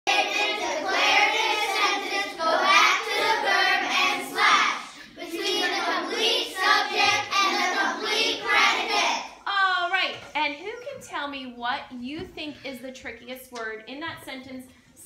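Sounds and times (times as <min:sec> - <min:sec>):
children singing: 0:00.1 - 0:09.4.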